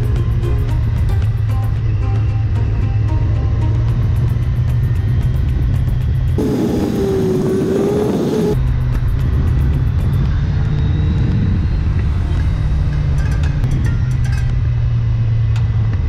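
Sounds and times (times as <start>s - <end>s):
background music: 0.0s - 10.2s
motorcycle engine running: 0.0s - 16.0s
wind rush: 2.6s - 14.0s.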